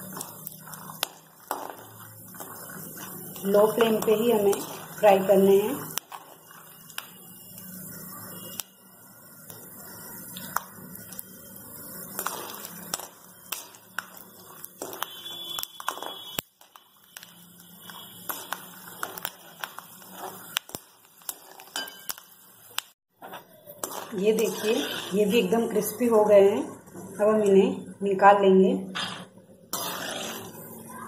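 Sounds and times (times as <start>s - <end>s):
oil sizzling with crackling pops: 0.0s - 27.5s, 29.0s - 31.0s
spatula scraping and tapping pan: 12.1s - 22.3s, 23.2s - 25.5s.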